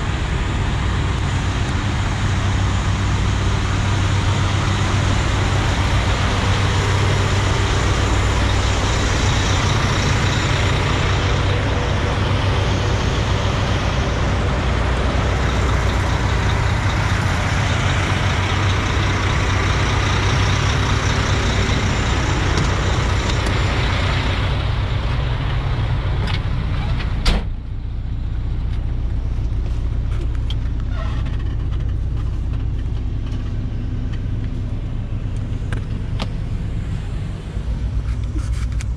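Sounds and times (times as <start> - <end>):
diesel truck engines idling: 0.0 - 38.9
truck door shutting: 26.8 - 27.6.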